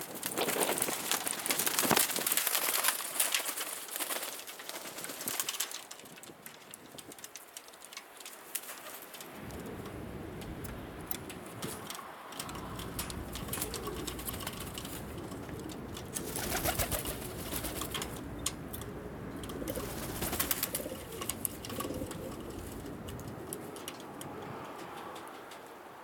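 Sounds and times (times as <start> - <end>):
rustling bursts: 0.0 - 18.7, 19.5 - 23.8
pigeons cooing: 9.6 - 25.6.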